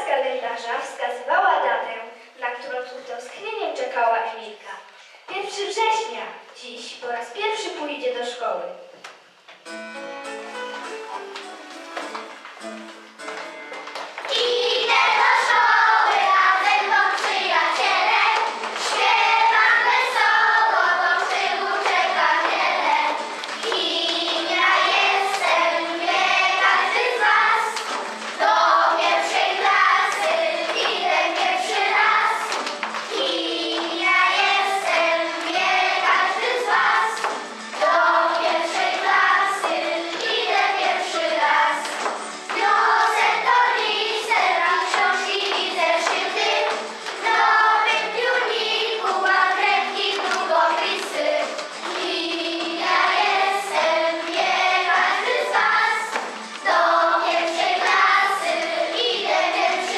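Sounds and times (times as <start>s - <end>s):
girls singing in unison: 14.2s - 59.9s.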